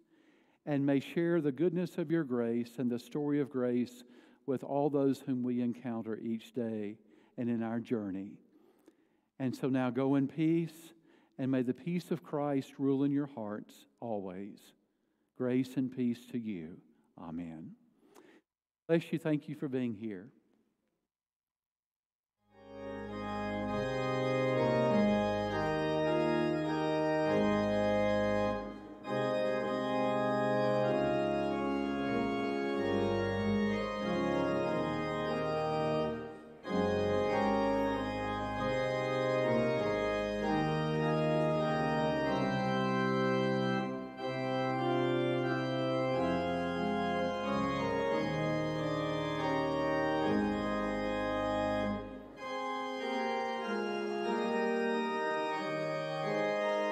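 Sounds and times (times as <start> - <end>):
church organ chords: 0.7 - 8.3, 22.5 - 56.9.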